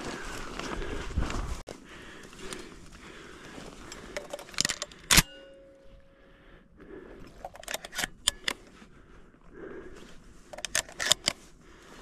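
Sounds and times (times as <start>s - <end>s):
ringing metallic clink: 5.1s - 6.0s.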